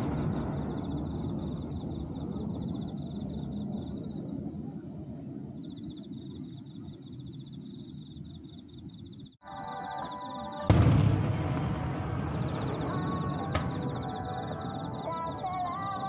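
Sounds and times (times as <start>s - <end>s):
low rumble of firework burst: 0.0s - 4.6s, 10.7s - 15.4s
insects trilling: 0.0s - 16.0s.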